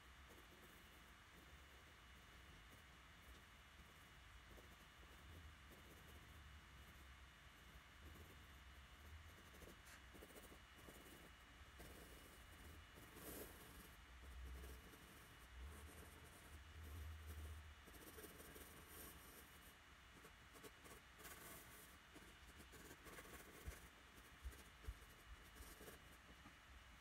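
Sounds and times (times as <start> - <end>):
pencil scratching on paper: 7.6 - 26.5.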